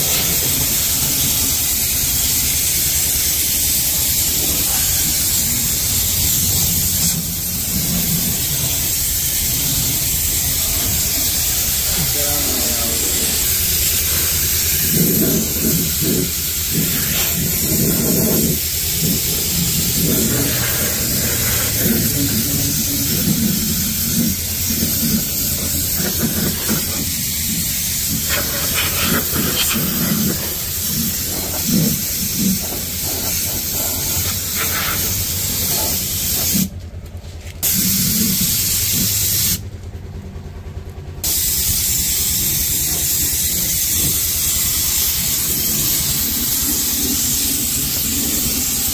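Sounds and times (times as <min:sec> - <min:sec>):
air spray gun hissing: 0:00.0 - 0:36.8, 0:37.6 - 0:39.6, 0:41.2 - 0:48.9
steady low hum: 0:00.0 - 0:48.9.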